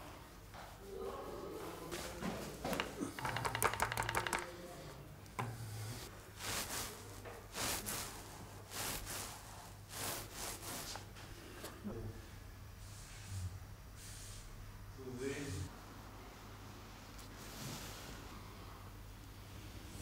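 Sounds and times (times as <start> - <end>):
rapid brush taps: 2.7 - 4.6
brush strokes swishing on canvas: 6.4 - 11.3.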